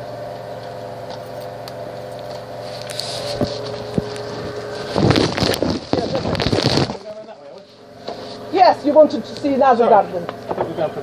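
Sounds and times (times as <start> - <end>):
steady mechanical hum: 0.0 - 11.0
rustling and knocking: 3.0 - 7.2.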